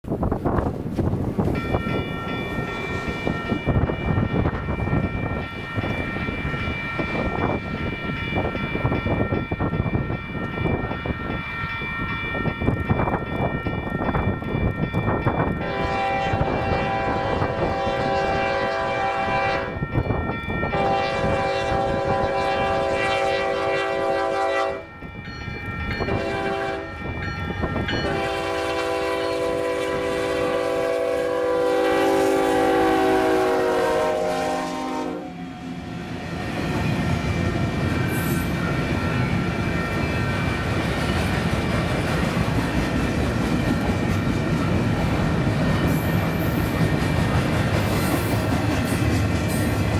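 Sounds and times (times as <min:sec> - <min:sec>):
train cars rumbling and clattering: 0:00.0 - 0:34.2, 0:35.5 - 0:49.9
locomotive air horn blasts: 0:15.6 - 0:19.8, 0:20.7 - 0:24.9, 0:26.1 - 0:26.9, 0:28.0 - 0:35.5.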